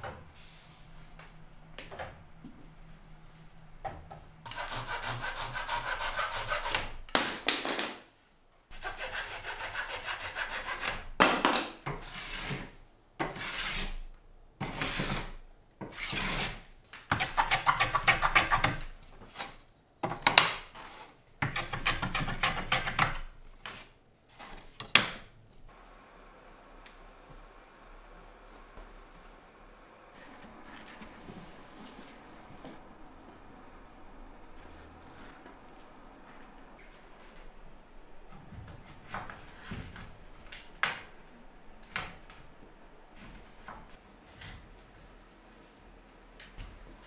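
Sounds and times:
hand plane shaving wood: 0:04.5 - 0:06.9, 0:08.8 - 0:11.0, 0:12.0 - 0:14.0, 0:14.6 - 0:15.3, 0:15.9 - 0:19.6.

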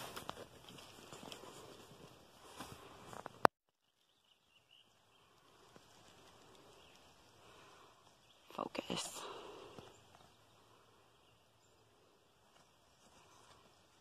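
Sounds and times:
rustling through leafy plants: 0:00.0 - 0:03.4, 0:05.2 - 0:09.7.

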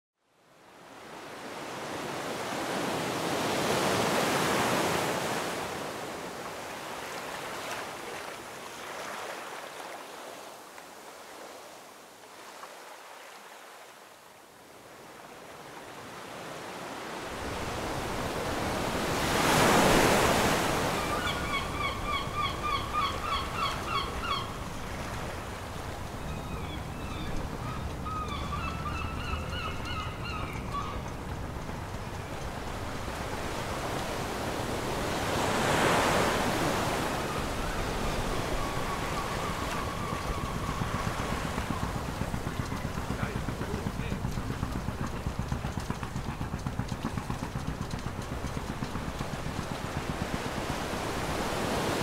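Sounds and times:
ocean waves washing in: 0:00.4 - 0:52.0
bird calling repeated notes: 0:20.8 - 0:31.4, 0:37.2 - 0:44.3.

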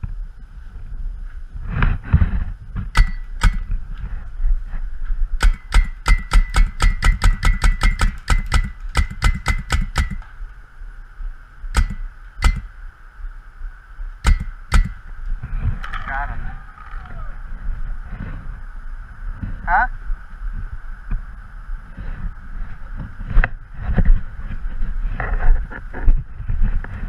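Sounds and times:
low rumble of wind: 0:00.0 - 0:27.0
paintball marker firing: 0:03.0 - 0:03.8, 0:05.4 - 0:10.4, 0:11.8 - 0:12.7, 0:14.2 - 0:15.1.

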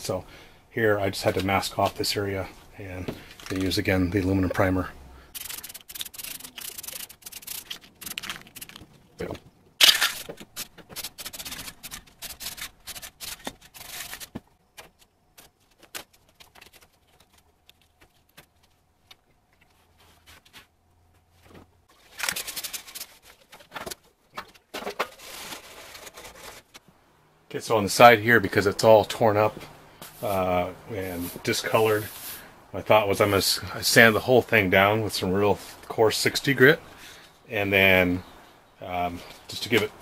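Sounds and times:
paper and tape crinkling: 0:03.2 - 0:04.0, 0:05.3 - 0:20.8, 0:21.4 - 0:26.8.

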